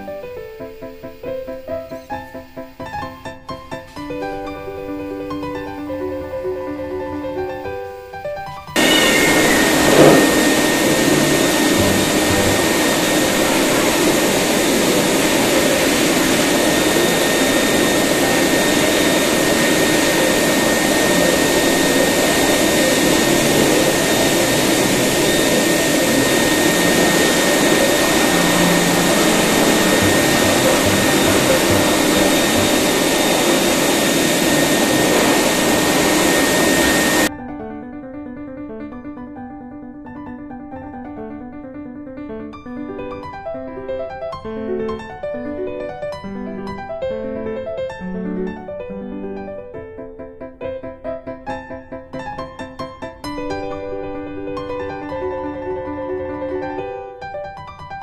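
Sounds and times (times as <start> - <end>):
grooming dryer blowing air: 8.8 - 37.3.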